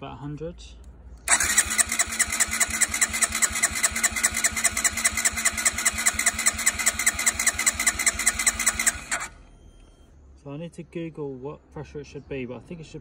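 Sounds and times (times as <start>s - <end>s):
engine cranking on starter: 1.2s - 9.5s.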